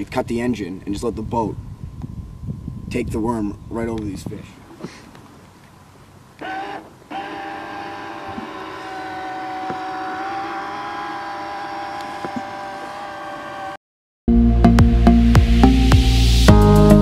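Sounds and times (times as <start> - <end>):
electric motor whine: 6.4 - 13.8.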